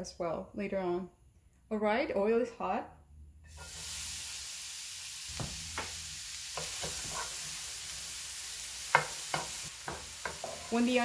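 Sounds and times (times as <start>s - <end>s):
onion and garlic sizzling in oil: 3.5s - 11.0s
spatula tapping on pan: 8.9s - 10.7s.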